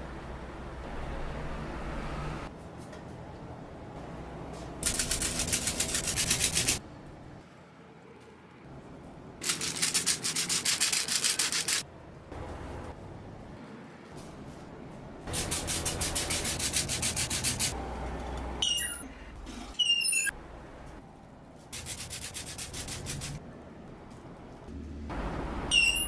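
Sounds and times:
short high squeaks: 0:18.6 - 0:19.1, 0:19.7 - 0:20.4, 0:25.7 - 0:26.0.

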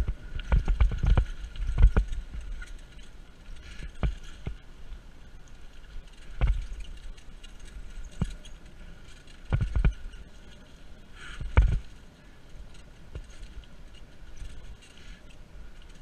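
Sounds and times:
bike thudding over bumps: 0:00.0 - 0:16.0
bike tyre noise on dirt: 0:00.0 - 0:16.0.

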